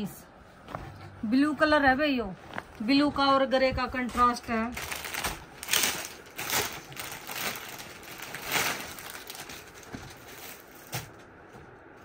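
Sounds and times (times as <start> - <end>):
cloth rustling: 3.9 - 11.0
plastic packing crinkling: 4.1 - 11.2.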